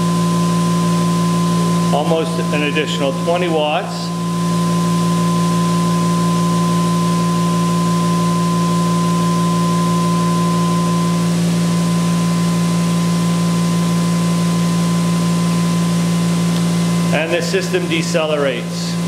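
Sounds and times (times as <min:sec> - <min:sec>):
electric generator humming: 0:00.0 - 0:19.0
high steady whine: 0:00.0 - 0:19.0.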